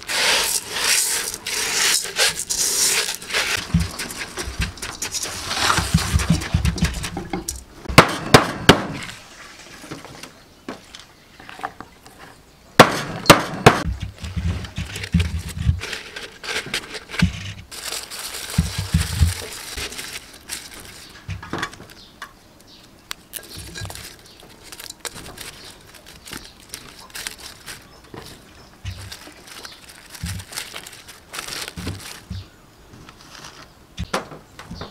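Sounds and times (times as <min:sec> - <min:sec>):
salt crunching in a metal pot: 0:00.0 - 0:07.6, 0:14.7 - 0:22.1, 0:22.7 - 0:32.4
stalks rustling: 0:00.0 - 0:07.7, 0:13.8 - 0:34.9.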